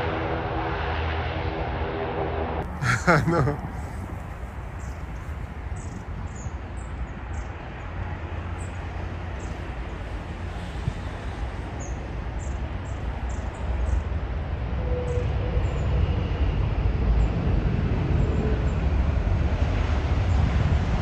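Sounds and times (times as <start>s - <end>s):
airliner jet engines rumbling: 0.0s - 21.0s.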